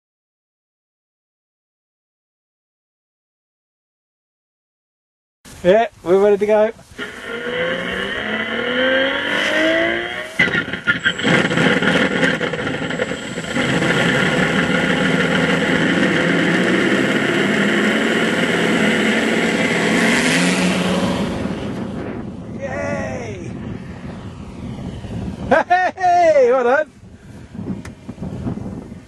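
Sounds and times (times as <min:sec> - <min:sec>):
propeller rushing noise: 0:06.1 - 0:29.0
simulated aero-engine drone: 0:06.9 - 0:29.0.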